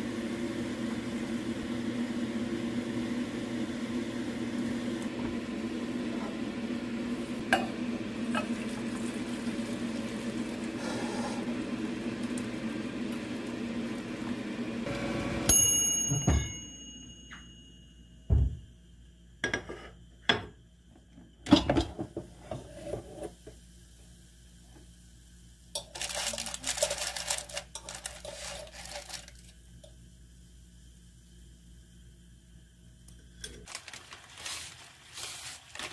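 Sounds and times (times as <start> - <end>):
broth boiling in pot: 0.0 - 15.5, 21.5 - 35.9
tongs scraping parchment paper: 25.8 - 29.5, 33.7 - 35.9.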